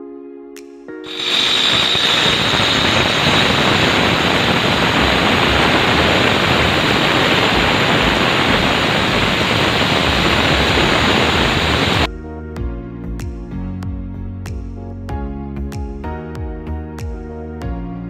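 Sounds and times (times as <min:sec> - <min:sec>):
angle grinder cutting stone: 0:01.1 - 0:12.1
high motor whine: 0:01.1 - 0:12.1.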